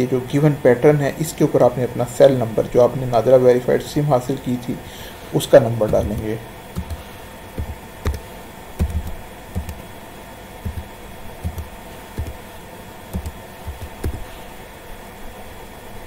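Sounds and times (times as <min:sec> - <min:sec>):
faint steady hum: 0:00.0 - 0:16.0
keyboard keystrokes: 0:05.9 - 0:07.0, 0:07.6 - 0:09.8, 0:10.7 - 0:12.4, 0:13.2 - 0:14.2.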